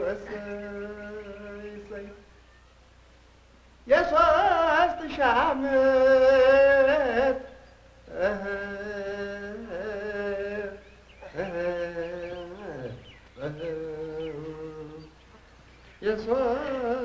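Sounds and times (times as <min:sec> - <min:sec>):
person singing long held notes: 0:03.9 - 0:15.2.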